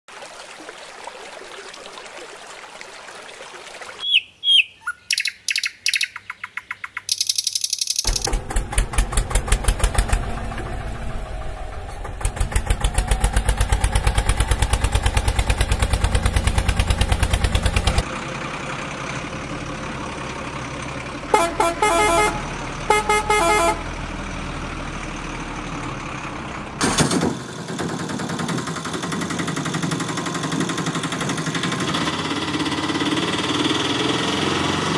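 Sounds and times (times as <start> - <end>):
rushing water: 0.1 - 4.4
vehicle engine chugging: 7.0 - 34.9
short horn beeps: 21.3 - 23.9
horn honks: 21.3 - 24.0.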